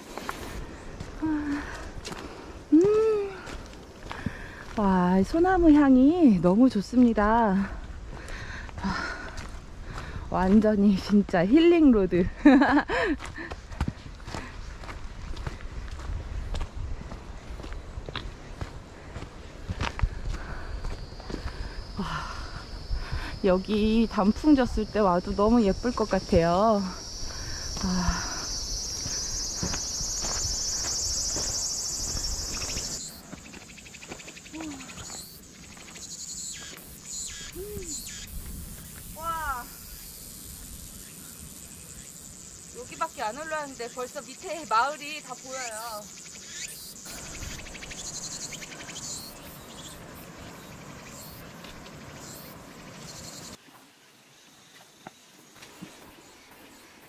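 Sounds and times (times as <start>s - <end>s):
insects chirring: 0.0s - 57.0s
high insect calls: 17.6s - 57.0s.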